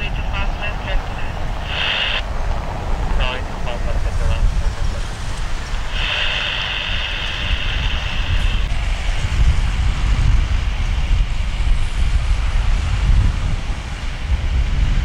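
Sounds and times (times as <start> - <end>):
steady high hiss: 0.0 - 2.4, 3.2 - 12.6
jet airliner rumble: 0.0 - 15.0
wind on microphone: 0.0 - 15.0.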